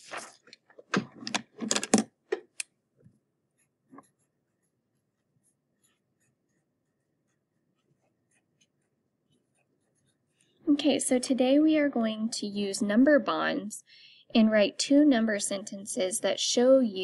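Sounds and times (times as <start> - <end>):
felt-tip marker writing on paper: 3.5 - 10.6.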